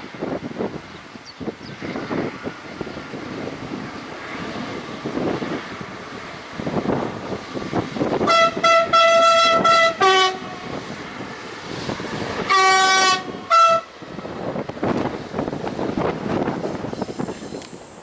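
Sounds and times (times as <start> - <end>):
diesel railcar rumble: 0.0 - 18.0
two-tone train horn: 8.2 - 10.7, 12.5 - 13.9.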